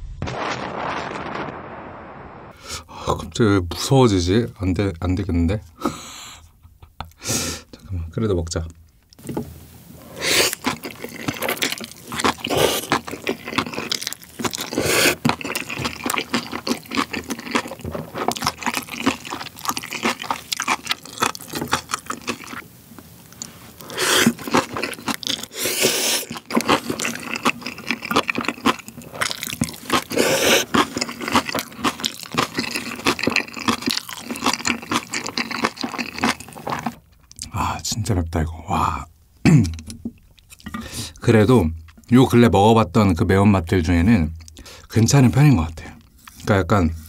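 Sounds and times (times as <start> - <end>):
noodles slurped: 10.0 - 22.6, 23.3 - 37.5
wet chewing: 10.0 - 37.5, 39.6 - 42.1
kimchi crunching: 10.0 - 37.6.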